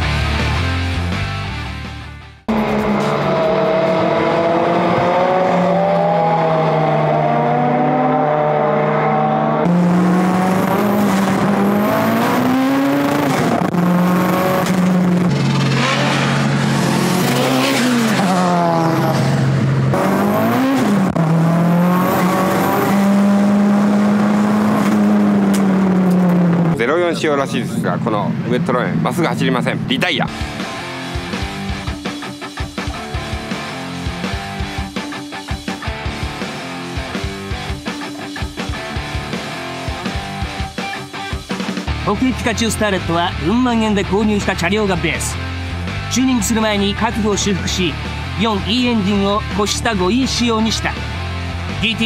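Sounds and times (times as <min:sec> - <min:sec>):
music: 0:00.0 - 0:02.5, 0:30.0 - 0:52.0
car engine revving: 0:02.4 - 0:41.0.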